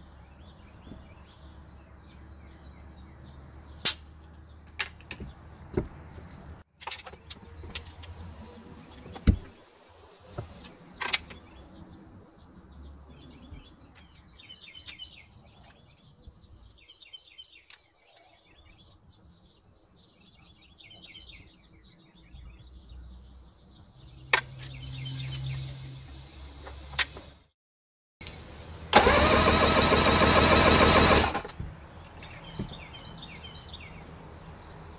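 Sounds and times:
birds chirping: 0.0 - 27.5, 31.6 - 34.9
outboard motor starter cranking: 28.9 - 31.5.

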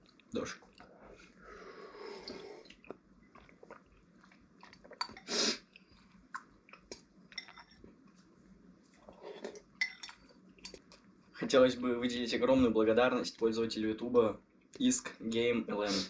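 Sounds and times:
wet chewing and mouth smacks: 2.2 - 8.2.

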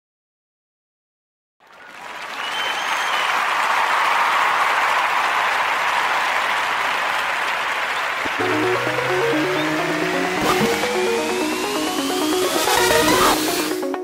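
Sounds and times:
crowd applause: 1.6 - 14.0
high whistle: 2.4 - 3.4.

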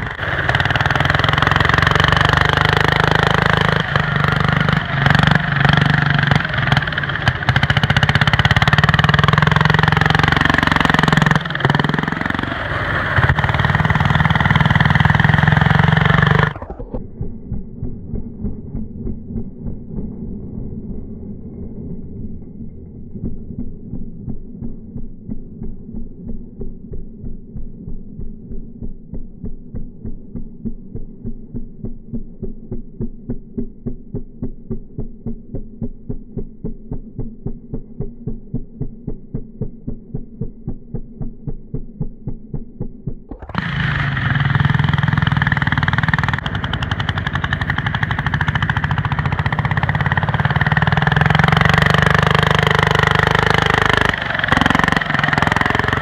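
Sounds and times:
diesel tractor engine: 0.0 - 27.6, 43.2 - 56.0.

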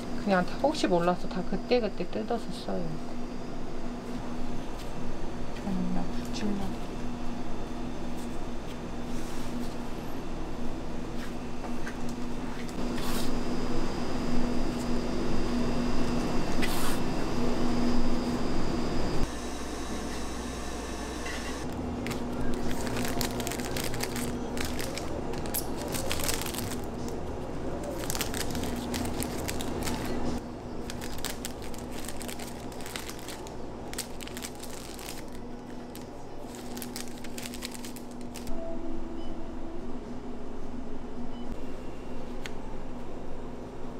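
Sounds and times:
steady low hum: 0.0 - 43.9
plastic bags crinkling: 21.7 - 27.2, 27.8 - 38.5.

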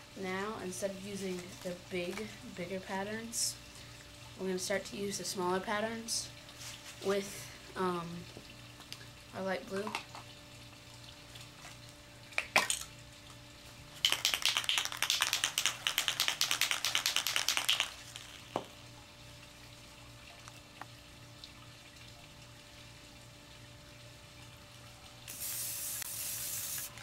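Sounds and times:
spray can mixing ball rattling: 14.0 - 18.6, 25.3 - 27.0.

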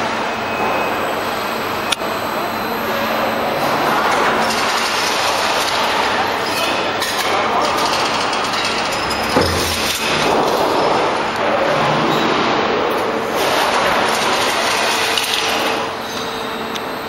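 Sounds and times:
machinery din: 3.4 - 15.9.

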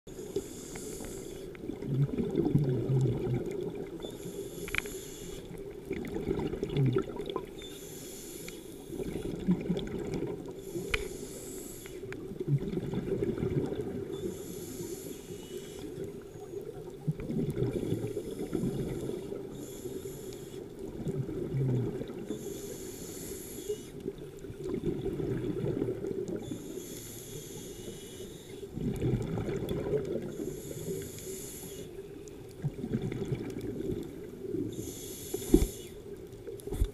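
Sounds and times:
regulator hissing inhale: 0.1 - 1.6, 4.0 - 5.6, 7.6 - 9.1, 10.5 - 12.2, 14.1 - 16.6, 18.0 - 20.8, 22.2 - 24.0, 26.4 - 28.8, 30.3 - 32.2, 34.7 - 36.2
exhaled bubbles burbling: 1.6 - 4.0, 5.8 - 7.5, 9.0 - 10.6, 12.2 - 14.1, 16.9 - 19.0, 20.9 - 22.3, 24.4 - 26.5, 28.7 - 30.3, 32.6 - 34.7.

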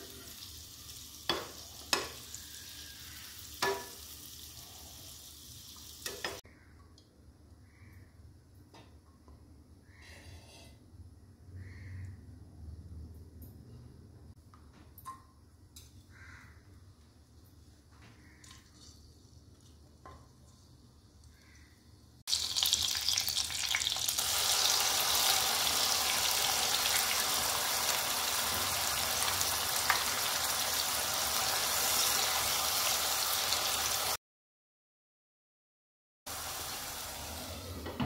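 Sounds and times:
paste sizzling in hot oil: 0.0 - 6.4, 22.3 - 34.2, 36.3 - 37.6.

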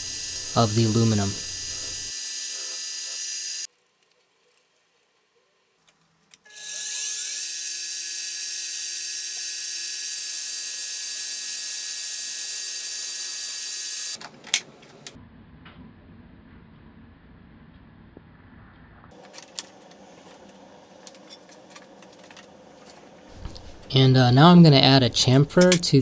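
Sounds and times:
milling machine spindle whine: 0.0 - 3.7, 6.7 - 14.2.

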